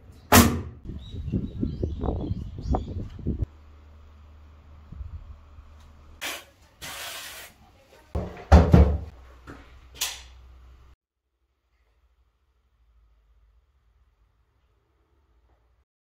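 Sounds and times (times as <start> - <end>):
heavy thumps and knocks: 8.2 - 9.1.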